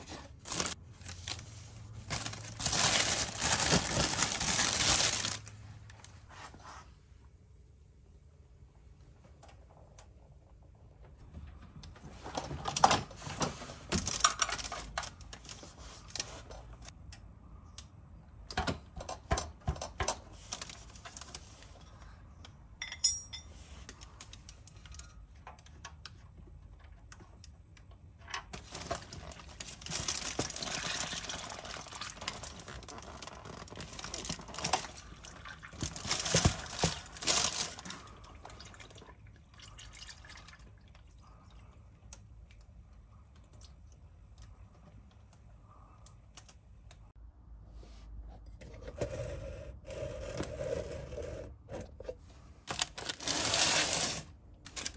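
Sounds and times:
plastic sheeting crinkling: 0.0 - 6.2, 28.6 - 38.1, 52.7 - 54.9.

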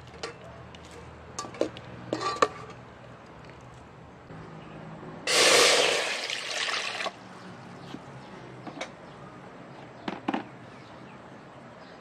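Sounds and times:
water pouring into metal pot: 5.3 - 7.2.

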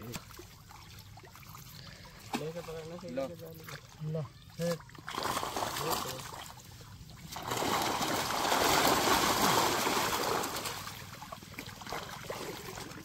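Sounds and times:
water splashing and rushing: 0.0 - 13.0.

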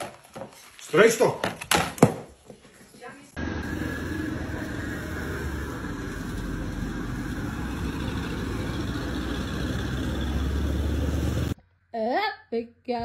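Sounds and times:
car driving past: 3.4 - 11.6.

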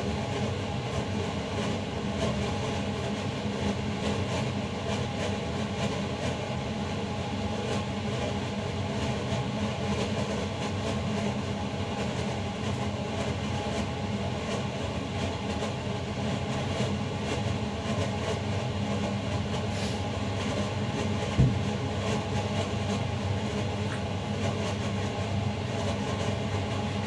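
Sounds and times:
low mechanical hum: 0.0 - 27.0
sharp knock: 21.4 - 21.7.

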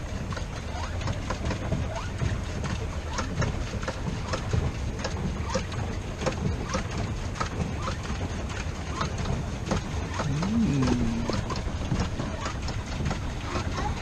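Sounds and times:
water churning: 0.0 - 14.0
low hum: 10.0 - 13.4.

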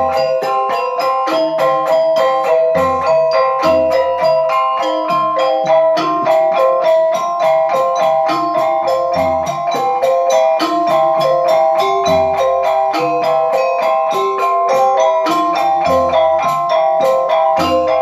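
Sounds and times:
metallophones ringing: 0.0 - 18.0.

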